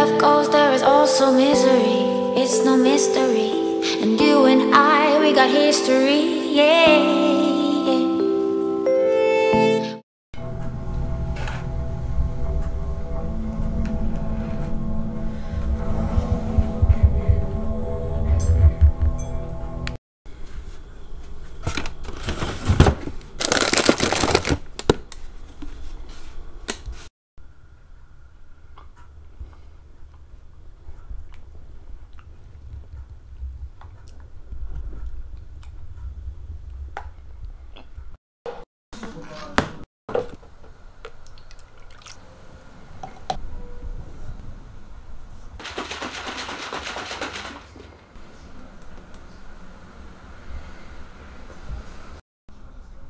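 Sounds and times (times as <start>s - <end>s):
background music: 0.0s - 20.0s.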